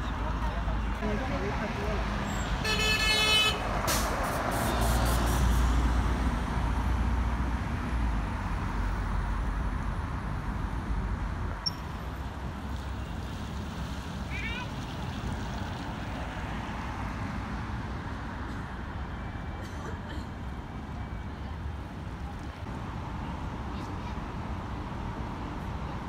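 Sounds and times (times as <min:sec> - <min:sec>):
car horn toot: 0:02.6 - 0:03.6.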